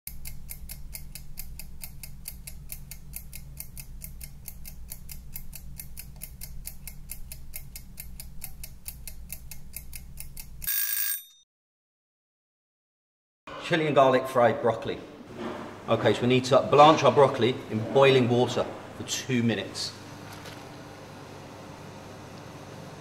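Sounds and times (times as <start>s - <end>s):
kitchen timer ticking fast: 0.1s - 10.7s
timer bell ringing: 10.7s - 11.4s.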